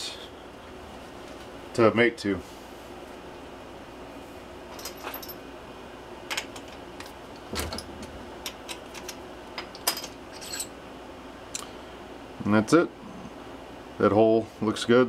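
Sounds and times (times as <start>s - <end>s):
small steel tools clinking: 9.0s - 10.7s.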